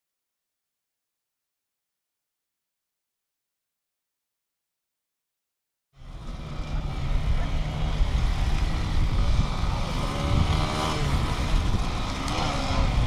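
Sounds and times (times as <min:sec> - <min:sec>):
engine revving: 0:06.0 - 0:13.0
motorcycle engines running: 0:06.0 - 0:13.0
wind rumbling on microphone: 0:06.0 - 0:13.0.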